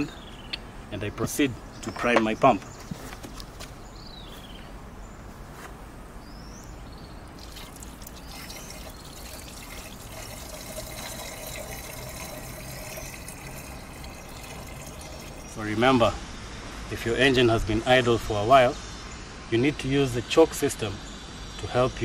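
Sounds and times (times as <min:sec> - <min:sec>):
water pouring and splashing: 0:07.3 - 0:15.8.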